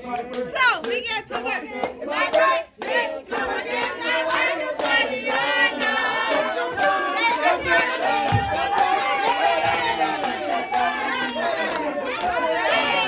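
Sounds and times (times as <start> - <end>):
crowd singing together: 0.0 - 13.0
people shouting: 8.1 - 13.0.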